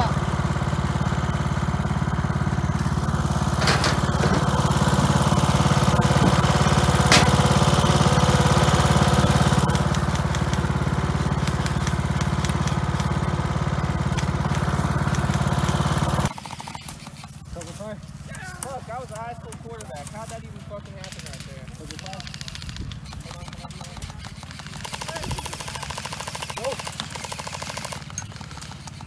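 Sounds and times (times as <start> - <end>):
small engine running: 0.0 - 29.0
sharp cracks: 2.8 - 13.3, 18.3 - 29.0.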